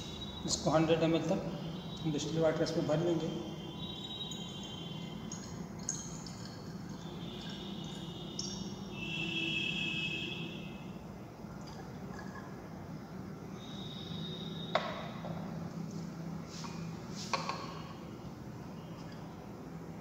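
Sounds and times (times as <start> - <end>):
water trickling into flask: 3.8 - 8.8, 11.4 - 12.8.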